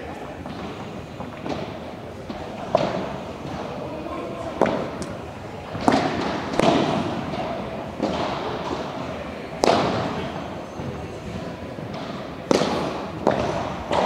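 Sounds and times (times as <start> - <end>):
padel ball hit with rackets: 5.8 - 8.8, 9.6 - 10.1, 11.8 - 14.0.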